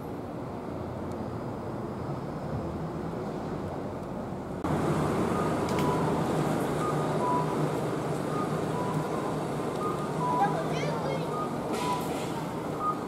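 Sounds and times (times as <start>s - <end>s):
street traffic: 0.0s - 13.0s
pedestrian crossing beeps: 5.1s - 13.0s.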